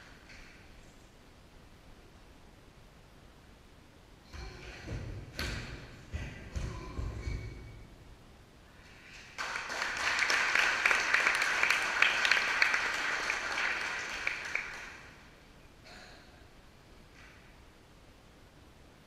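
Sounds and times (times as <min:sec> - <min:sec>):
audience applauding: 0:09.0 - 0:15.3.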